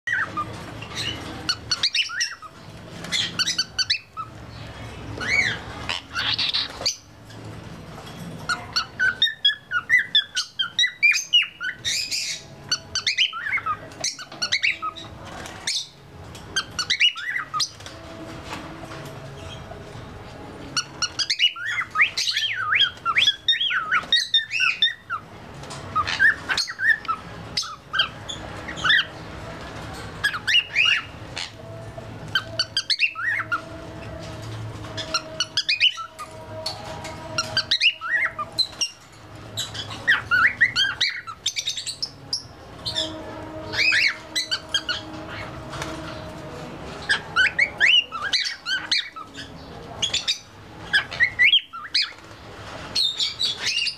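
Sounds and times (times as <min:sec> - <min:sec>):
cockatiel chirping and warbling: 0:00.1 - 0:04.3, 0:05.2 - 0:07.1, 0:08.5 - 0:16.0, 0:16.6 - 0:17.8, 0:20.8 - 0:25.2, 0:26.0 - 0:29.1, 0:30.2 - 0:31.6, 0:32.3 - 0:33.7, 0:35.0 - 0:36.8, 0:37.4 - 0:39.0, 0:39.6 - 0:45.5, 0:47.0 - 0:52.2.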